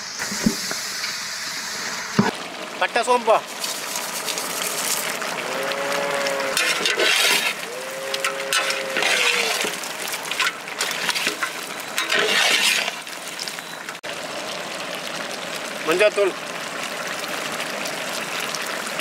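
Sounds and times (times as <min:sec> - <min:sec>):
metal ladle scraping in pot: 0:06.5 - 0:13.0.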